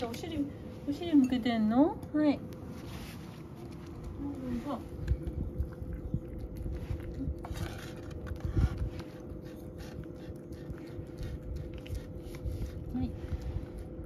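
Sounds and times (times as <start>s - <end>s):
cat chewing wet food: 3.2s - 14.0s.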